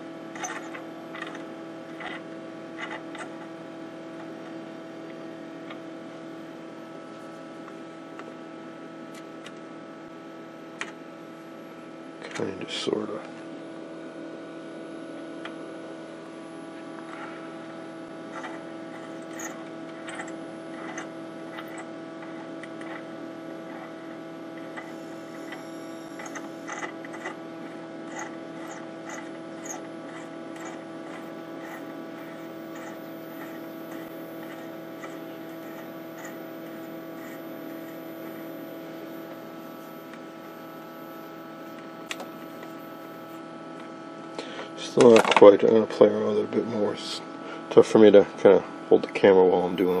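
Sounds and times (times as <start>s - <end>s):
tube television hum: 0.0s - 50.0s
high-pitched whine: 12.3s - 43.8s.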